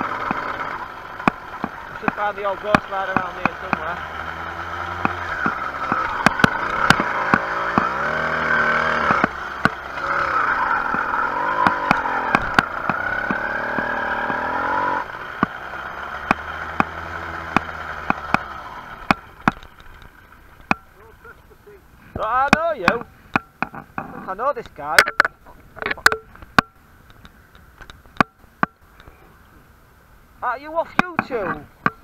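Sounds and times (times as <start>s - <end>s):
sharp rattling clicks: 0.0s - 8.2s
small motorbike engine running: 0.0s - 21.2s.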